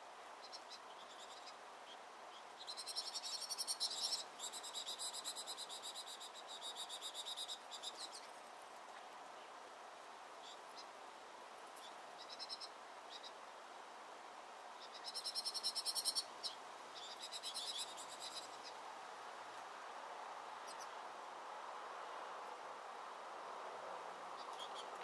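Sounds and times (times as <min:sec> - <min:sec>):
faint background hiss: 0:00.0 - 0:25.0.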